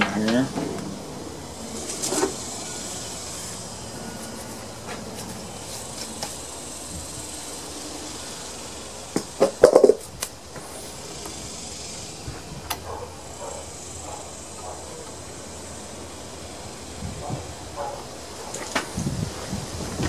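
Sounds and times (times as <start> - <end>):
steady high hiss: 0.0 - 20.0.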